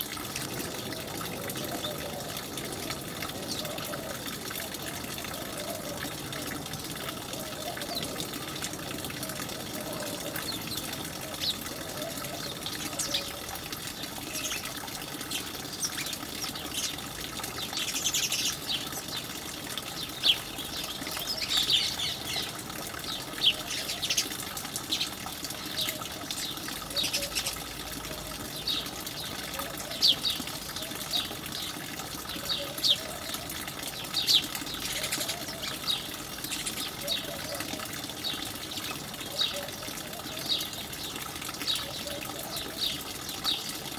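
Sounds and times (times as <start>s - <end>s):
sparrows chirping: 9.3s - 19.3s, 20.0s - 27.7s, 28.6s - 43.8s.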